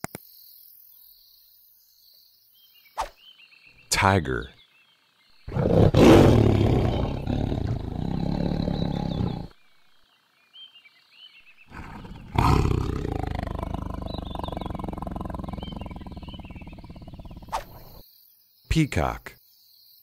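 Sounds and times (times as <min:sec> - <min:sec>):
faint bird chirps: 0:00.1 - 0:20.0
tiger growling: 0:05.4 - 0:09.6, 0:11.5 - 0:18.0
tiger roaring: 0:05.4 - 0:09.6, 0:11.6 - 0:18.0.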